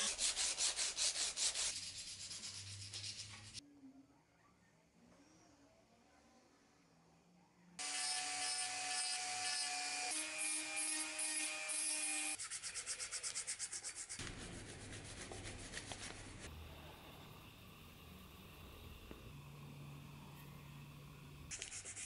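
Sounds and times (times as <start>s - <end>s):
abrasive paper rubbing steel: 0.0s - 3.6s.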